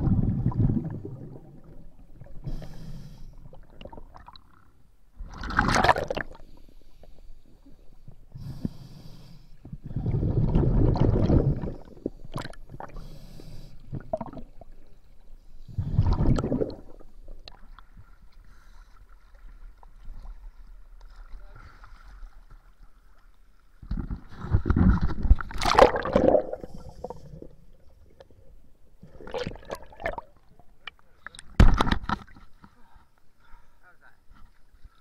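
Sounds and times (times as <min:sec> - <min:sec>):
bubbling exhalations: 0:00.0 - 0:02.6, 0:09.8 - 0:13.1, 0:13.8 - 0:14.6, 0:15.7 - 0:17.2, 0:23.9 - 0:28.3, 0:29.0 - 0:30.4
regulator hissing inhalations: 0:02.4 - 0:03.4, 0:08.4 - 0:09.6, 0:13.0 - 0:13.9.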